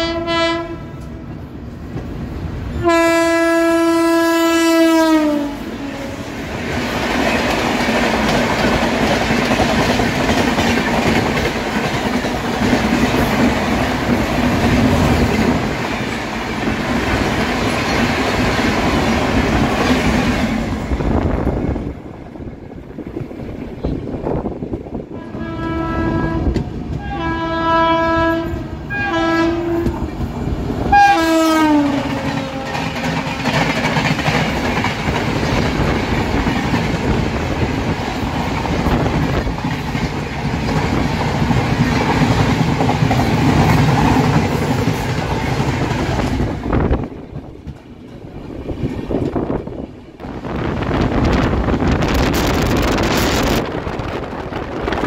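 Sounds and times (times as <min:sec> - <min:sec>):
train horn blasts: 0:00.0 - 0:01.2, 0:02.8 - 0:06.2, 0:25.1 - 0:30.0, 0:30.9 - 0:33.3
train coaches rushing past: 0:05.0 - 0:55.0.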